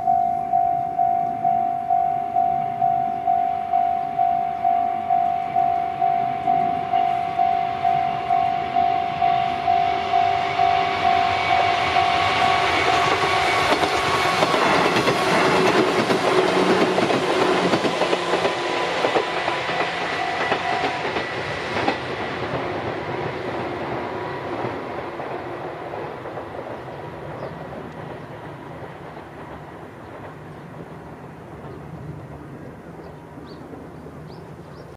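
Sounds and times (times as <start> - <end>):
level crossing alarm ringing: 0.0 - 16.0, 18.6 - 21.5
train wheels clattering over rails: 10.0 - 33.6.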